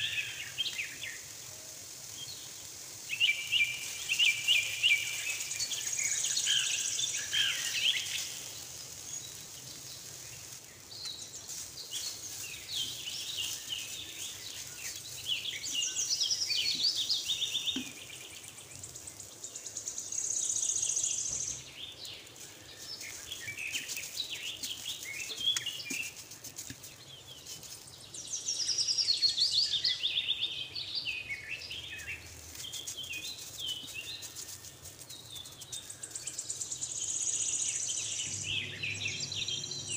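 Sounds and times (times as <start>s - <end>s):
songbirds chirping and singing: 0.0s - 39.9s.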